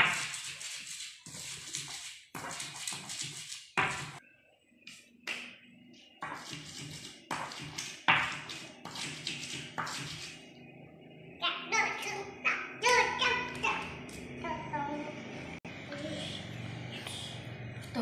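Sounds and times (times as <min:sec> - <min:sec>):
pestle grinding in a mortar: 0:06.2 - 0:10.4.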